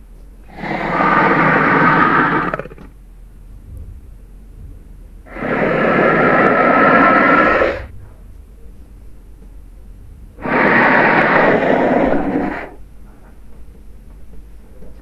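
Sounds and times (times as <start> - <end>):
loud noisy lizard calls: 0.5 - 2.9, 5.3 - 7.9, 10.4 - 12.8.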